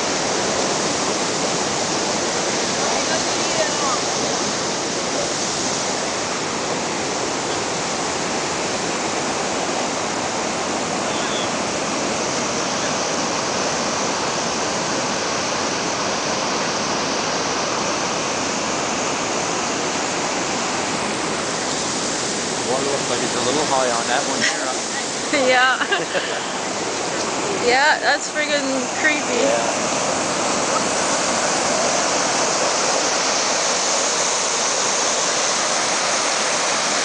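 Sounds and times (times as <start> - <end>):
floodwater rushing: 0.0 - 37.0.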